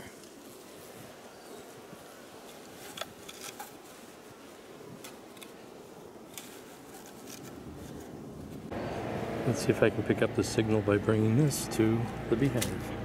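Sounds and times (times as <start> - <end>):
hands rustling burlap: 0.0 - 8.7
honeybees humming: 8.2 - 13.0.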